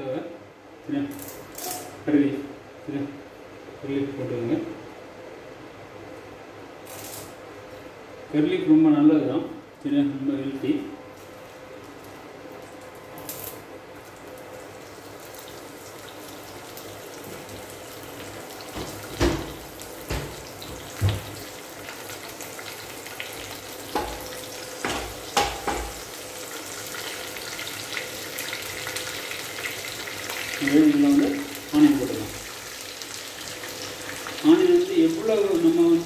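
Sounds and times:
leaves sizzling in hot oil: 0:14.0 - 0:36.0.

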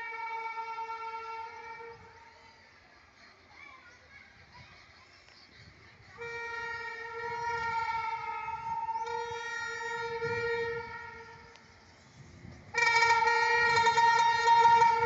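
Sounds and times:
locomotive air horn blast: 0:00.0 - 0:02.2, 0:06.2 - 0:11.7, 0:12.7 - 0:15.0.

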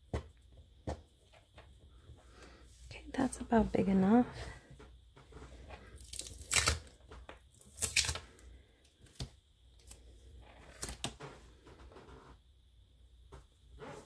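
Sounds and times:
tape tearing off a tabletop: 0:06.2 - 0:06.9, 0:07.6 - 0:08.3.

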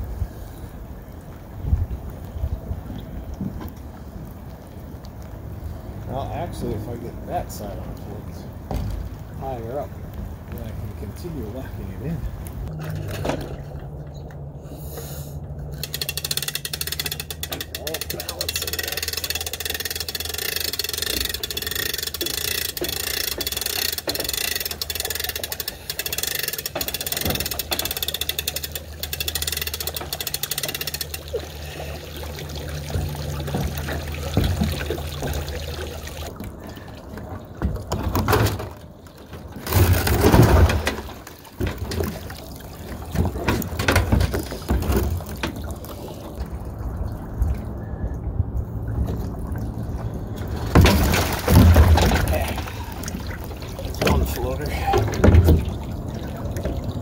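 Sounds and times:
water sloshing and splashing: 0:00.0 - 0:57.0.

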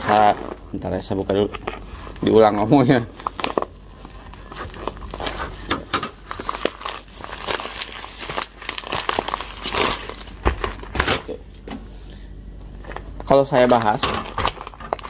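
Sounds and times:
plastic bag crinkling: 0:00.0 - 0:11.4, 0:12.8 - 0:15.0
scissors cutting plastic: 0:13.7 - 0:15.0.

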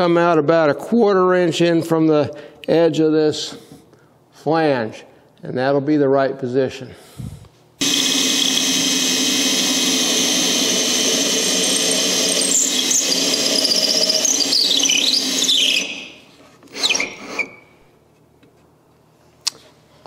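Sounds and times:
power drill boring wood: 0:07.8 - 0:17.5.

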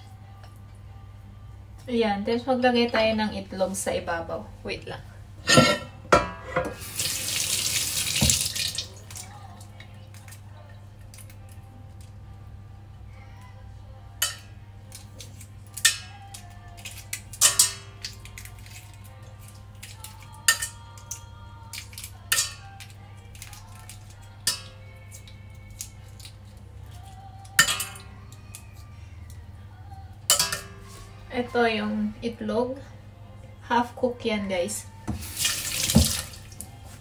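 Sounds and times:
dishes and utensils clinking: 0:05.4 - 0:06.9, 0:14.2 - 0:23.5, 0:27.4 - 0:28.1, 0:30.3 - 0:31.0
kitchen tap running: 0:06.7 - 0:09.3, 0:35.1 - 0:36.7.

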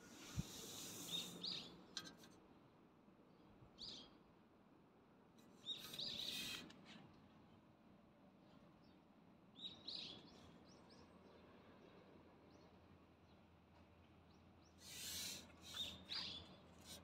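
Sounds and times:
rushes of hiss: 0:00.0 - 0:01.5, 0:14.8 - 0:15.8
small birds chirping: 0:00.1 - 0:02.2, 0:05.4 - 0:07.6, 0:08.4 - 0:13.5, 0:14.2 - 0:17.0.

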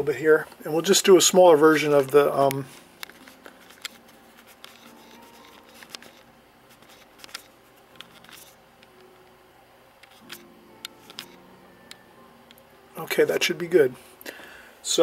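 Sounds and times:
camera handling clicks: 0:03.0 - 0:04.0, 0:04.6 - 0:08.9, 0:10.0 - 0:11.4.

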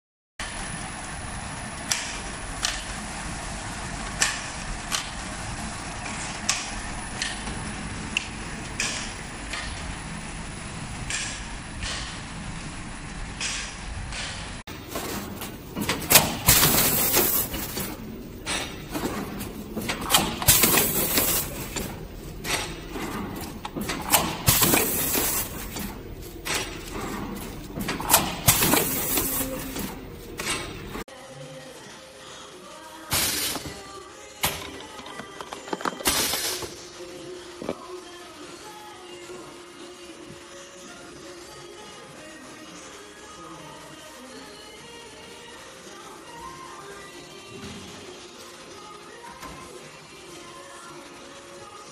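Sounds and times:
machinery humming: 0:00.4 - 0:31.0.

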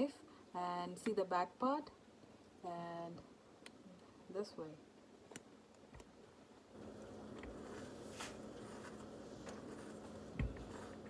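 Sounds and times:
steady low hum: 0:01.9 - 0:11.0.

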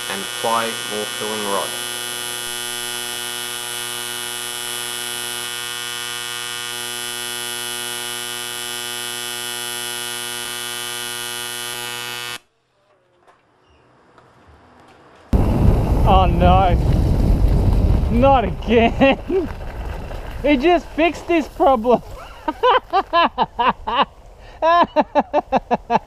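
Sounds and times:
welding arc buzzing: 0:00.0 - 0:12.5, 0:15.3 - 0:23.0.

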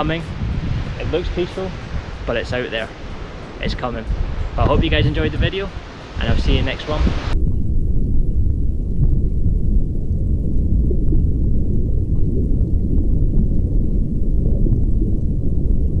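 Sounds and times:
underwater rumble of moving water: 0:07.3 - 0:16.0.

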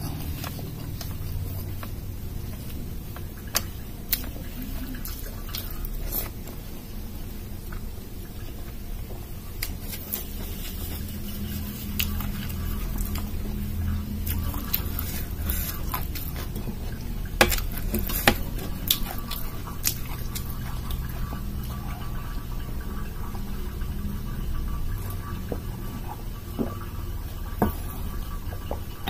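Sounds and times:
wet chewing and lip smacks: 0:14.2 - 0:22.1.

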